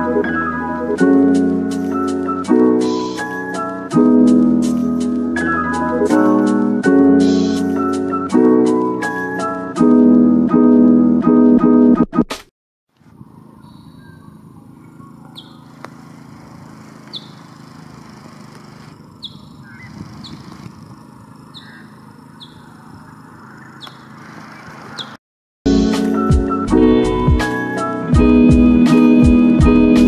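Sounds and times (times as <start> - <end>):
small birds chirping: 13.3 - 25.2.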